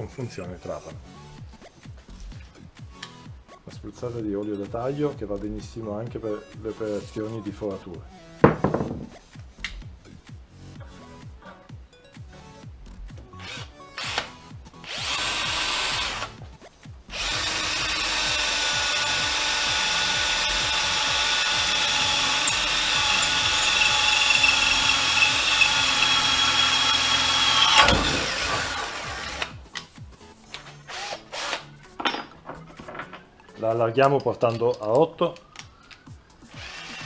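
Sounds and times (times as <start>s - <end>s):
drill whining into steel: 13.4s - 16.4s, 17.1s - 29.6s, 30.9s - 31.6s, 36.5s - 37.0s.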